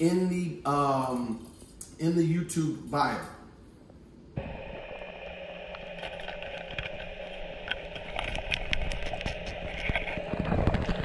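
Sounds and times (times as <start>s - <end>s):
sharp clicks and crackles: 4.4s - 11.0s
underwater engine-like hum: 4.4s - 11.0s.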